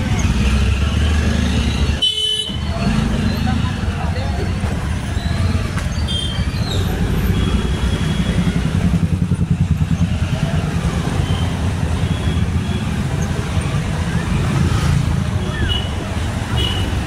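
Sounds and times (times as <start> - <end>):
motorcycle engine rumbling: 0.0 - 17.0
surrounding traffic noise: 0.0 - 17.0.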